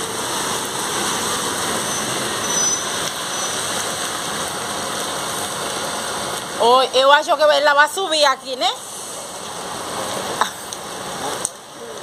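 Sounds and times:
heavy rain on standing water: 0.0 - 12.0.

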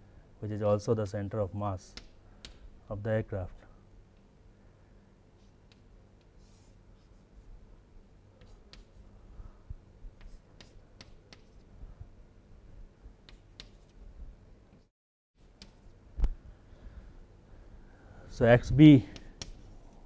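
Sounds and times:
low steady hum: 0.0 - 20.0
chalk scratching on blackboard: 6.4 - 7.4, 8.4 - 9.0.

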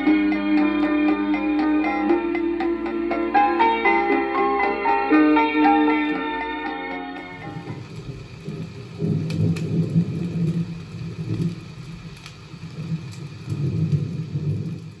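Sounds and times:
fire crackling: 5.1 - 15.0
fire rumbling: 7.1 - 15.0.

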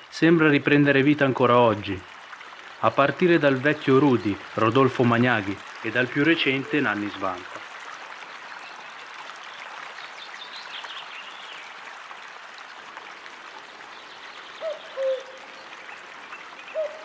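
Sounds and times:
stream water flowing: 0.0 - 17.0.

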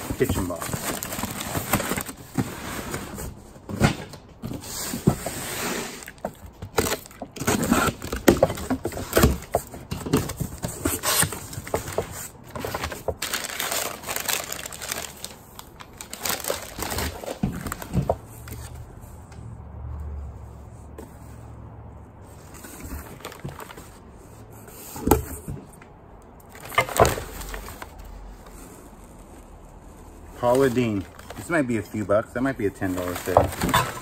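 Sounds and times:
paper crinkling: 0.0 - 2.2, 10.6 - 18.7, 30.3 - 32.1, 32.8 - 34.0.

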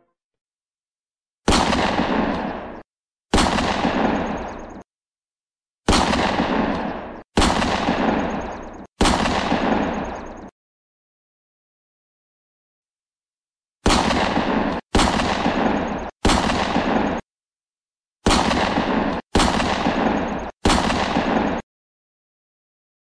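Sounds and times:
gunfire sound effect: 1.5 - 4.9, 5.9 - 10.5, 13.8 - 17.2, 18.2 - 21.6.

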